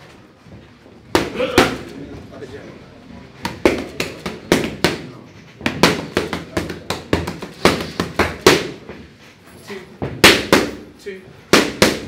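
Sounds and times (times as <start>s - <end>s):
boxing gloves hitting mitts: 1.0s - 2.0s, 3.4s - 9.0s, 10.0s - 10.9s, 11.5s - 12.0s.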